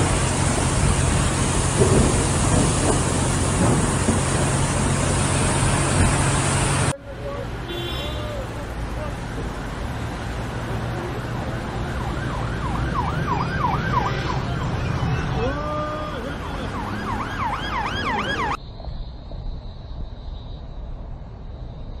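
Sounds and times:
road traffic rumble: 0.0 - 20.0
emergency siren yelping: 11.4 - 18.6.

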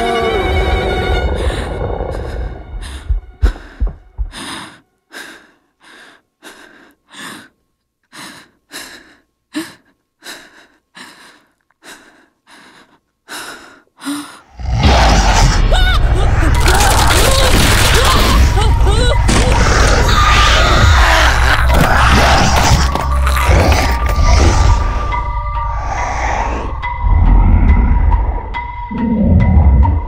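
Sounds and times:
low rumble: 0.4 - 4.4, 15.5 - 30.0
person gasping rapid breaths: 1.4 - 14.5.

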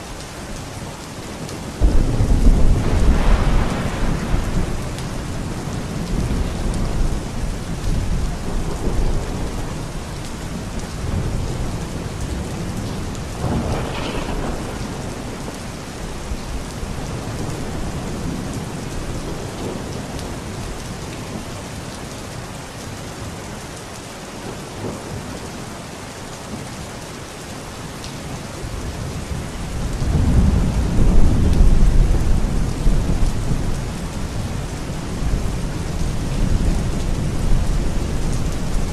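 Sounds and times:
steady rain: 0.0 - 38.9
rolling thunder: 1.8 - 20.3, 28.8 - 38.9.

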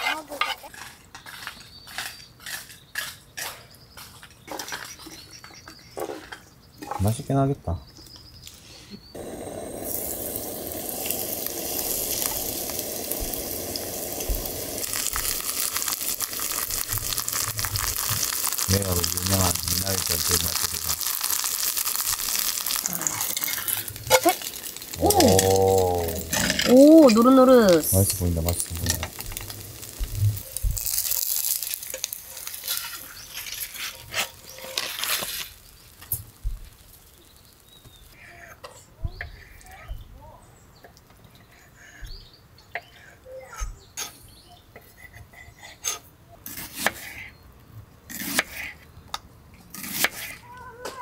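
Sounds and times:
pancake sizzling in hot oil: 9.2 - 38.2.

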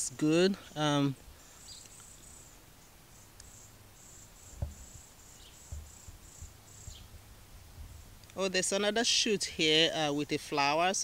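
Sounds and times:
faint insect chirping: 0.4 - 8.8
soft low thump: 4.6 - 5.0, 5.7 - 6.5.

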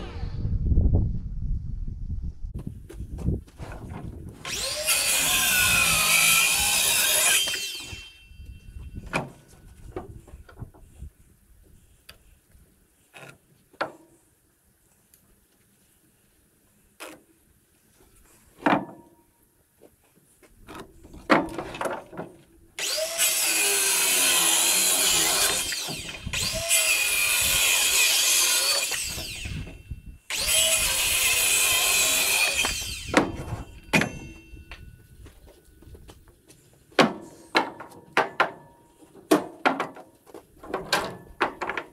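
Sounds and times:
power saw cutting: 4.4 - 8.2, 22.8 - 33.8.

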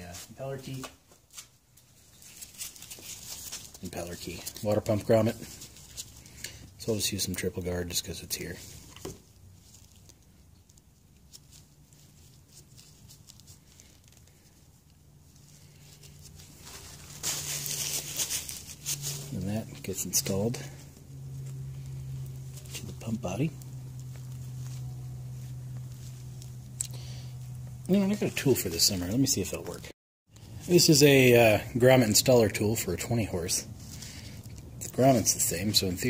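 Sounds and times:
gloved hands rubbing and clicking: 0.2 - 29.8
low steady hum: 1.7 - 36.0.

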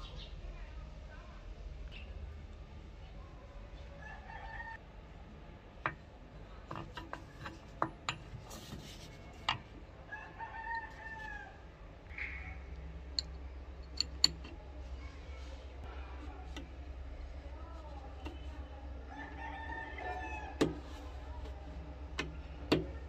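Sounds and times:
rooster crowing: 4.0 - 4.8, 10.1 - 11.6, 19.1 - 20.6
metallic clicks and taps: 13.1 - 14.6.

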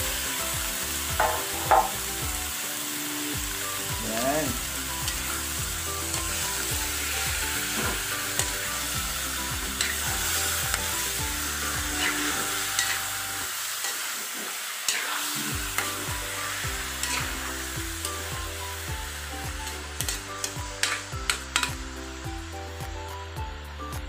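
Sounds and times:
chicken sizzling in hot oil: 0.0 - 23.4
metal spatula scraping a wok: 9.7 - 13.1, 13.8 - 18.2.

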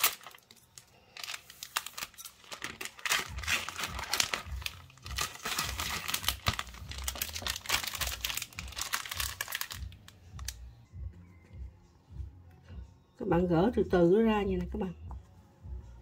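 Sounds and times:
plastic wrapper crinkling: 0.0 - 10.6.

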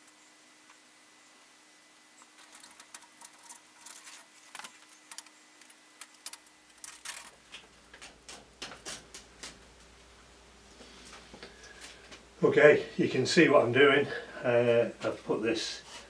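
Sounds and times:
plastic tape crinkling: 2.4 - 9.6.

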